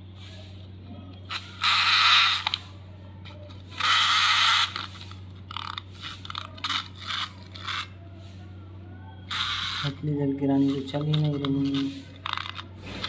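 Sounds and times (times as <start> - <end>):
clockwork toy being wound: 1.2 - 7.9, 9.3 - 13.0.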